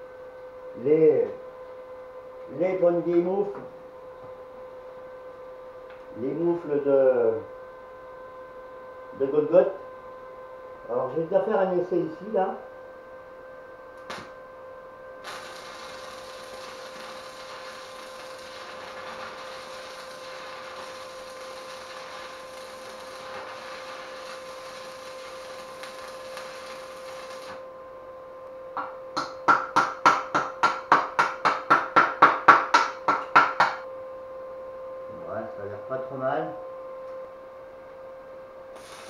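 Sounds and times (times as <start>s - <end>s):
welding arc crackling hiss: 15.2s - 27.6s, 38.7s - 39.0s.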